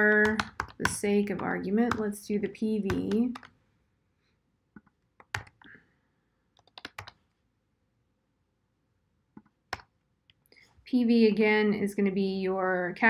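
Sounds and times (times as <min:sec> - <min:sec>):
computer keyboard typing: 0:00.0 - 0:02.2, 0:02.9 - 0:03.5, 0:04.8 - 0:05.7, 0:06.6 - 0:07.2.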